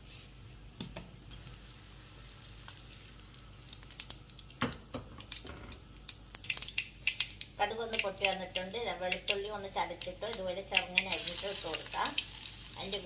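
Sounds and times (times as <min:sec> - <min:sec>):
oil frying sizzle: 0:00.0 - 0:13.0
mustard seeds popping: 0:03.6 - 0:12.3.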